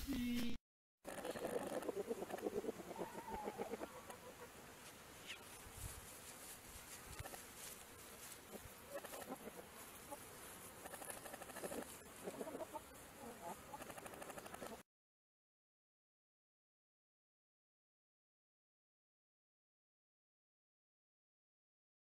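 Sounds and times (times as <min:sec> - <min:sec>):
chickens clucking: 0:01.1 - 0:04.6, 0:07.1 - 0:07.4, 0:08.4 - 0:14.8.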